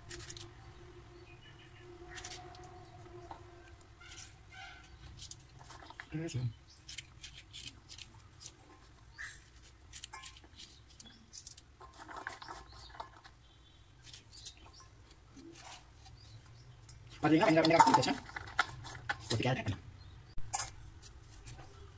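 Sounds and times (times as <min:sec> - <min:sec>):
pieces dropping into metal bowl: 0:17.4 - 0:19.4.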